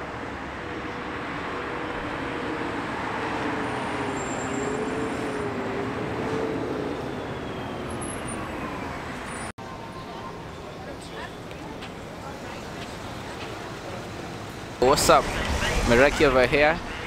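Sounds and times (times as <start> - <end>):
cars driving past: 12.6 - 17.0.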